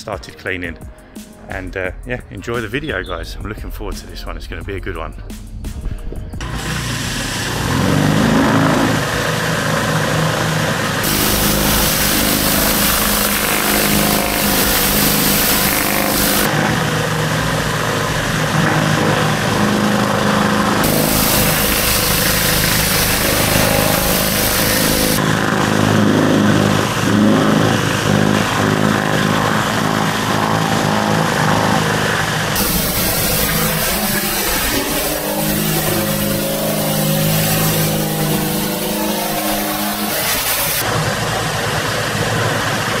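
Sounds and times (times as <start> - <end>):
high-pressure water jet hissing: 6.4 - 43.0
pressure washer engine: 6.4 - 43.0.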